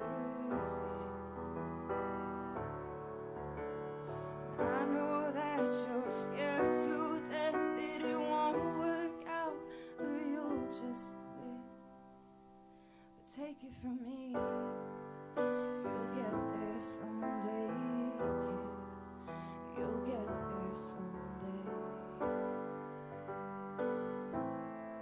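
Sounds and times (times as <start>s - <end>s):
woman singing: 0.0s - 1.3s, 4.6s - 11.8s, 13.2s - 14.9s, 15.6s - 22.7s
grand piano chords: 0.0s - 25.0s.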